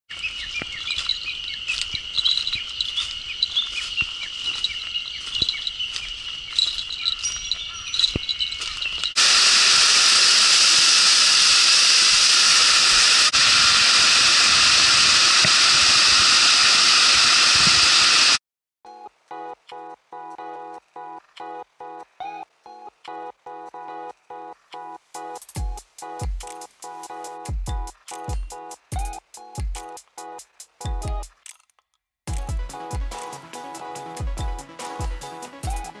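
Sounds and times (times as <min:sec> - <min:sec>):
birds chirping: 0:00.1 - 0:09.2
waterfall rushing: 0:09.2 - 0:18.4.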